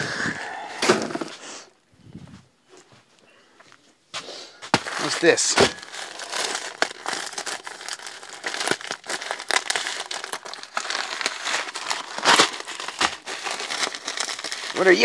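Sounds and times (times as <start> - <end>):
plastic packaging crinkling: 4.7 - 15.0.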